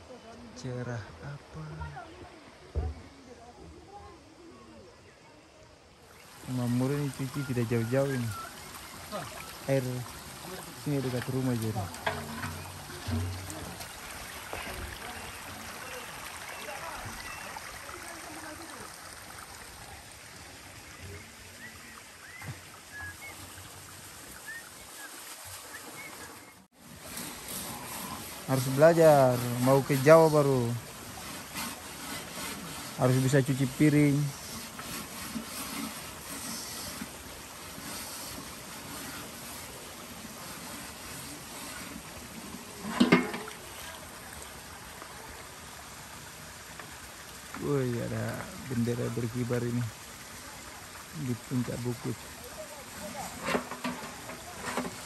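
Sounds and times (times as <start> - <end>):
running water hiss: 0.0 - 55.0
dishes clattering: 12.0 - 13.6, 42.8 - 43.5.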